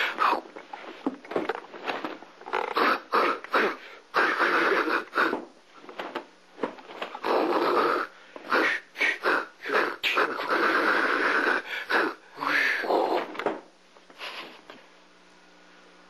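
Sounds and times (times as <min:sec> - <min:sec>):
person huffing and hissing: 0:02.7 - 0:05.5.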